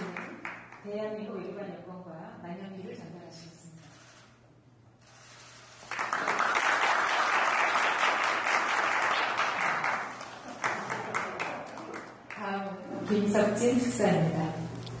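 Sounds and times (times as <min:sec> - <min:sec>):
applause: 0:00.0 - 0:00.9, 0:05.8 - 0:12.5.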